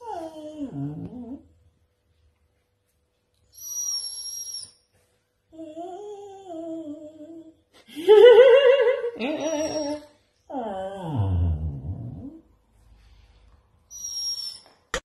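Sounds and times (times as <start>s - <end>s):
husky whining and howling: 0.0s - 1.4s.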